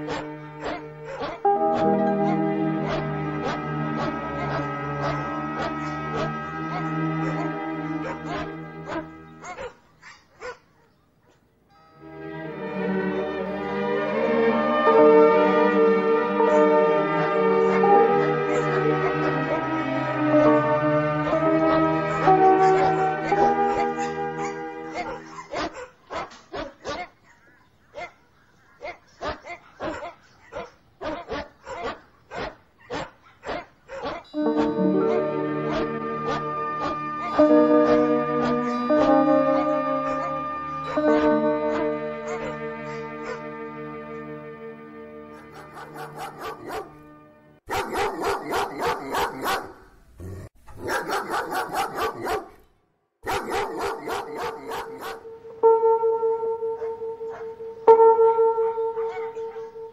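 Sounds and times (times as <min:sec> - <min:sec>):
dog barking: 0:00.0 - 0:02.0, 0:02.8 - 0:11.4, 0:16.5 - 0:19.6, 0:21.2 - 0:43.5, 0:45.3 - 0:47.0, 0:47.7 - 0:49.9, 0:50.7 - 0:55.4, 0:56.7 - 0:57.7, 0:58.8 - 0:59.9.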